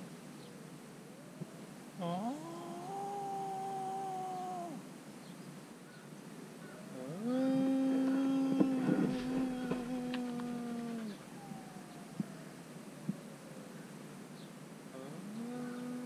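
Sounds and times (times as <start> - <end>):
puppy howling: 7.0 - 12.5.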